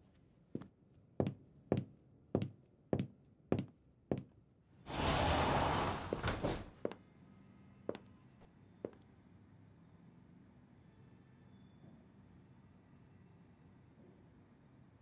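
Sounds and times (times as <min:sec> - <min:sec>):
door opening with rush of noise: 0:04.9 - 0:06.8.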